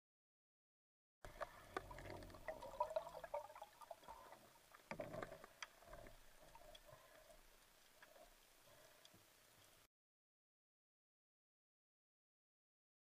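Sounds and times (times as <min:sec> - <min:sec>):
underwater clicks and crackles: 0:01.3 - 0:09.8
low hiss: 0:01.3 - 0:09.9.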